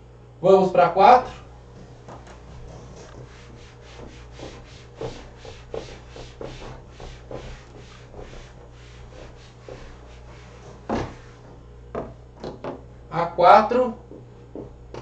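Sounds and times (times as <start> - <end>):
eraser rubbing on whiteboard: 2.2 - 11.6.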